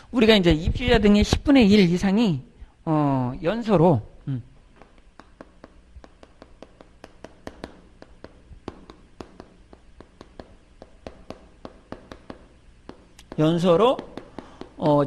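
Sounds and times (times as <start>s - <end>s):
chalk tapping and scratching on chalkboard: 4.8s - 15.0s.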